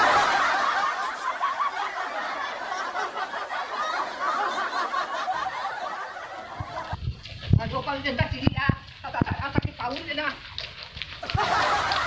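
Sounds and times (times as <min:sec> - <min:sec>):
crowd laughing: 0:00.0 - 0:07.0, 0:11.2 - 0:12.0.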